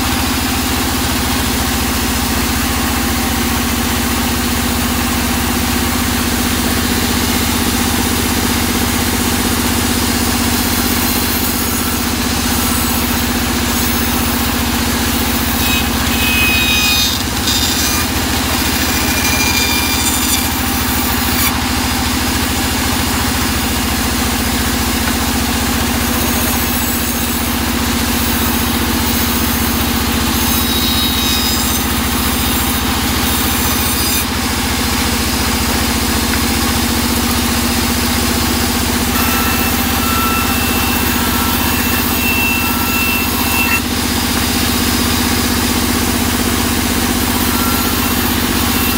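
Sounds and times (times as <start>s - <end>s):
band saw droning: 0.0s - 48.9s
blade squeaking in wood: 10.7s - 21.7s, 25.8s - 34.4s, 38.8s - 43.9s, 47.1s - 48.9s.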